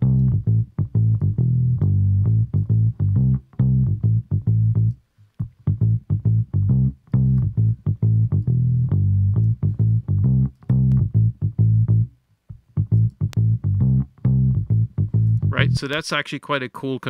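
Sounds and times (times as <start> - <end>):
bass guitar low notes: 0.0 - 15.9.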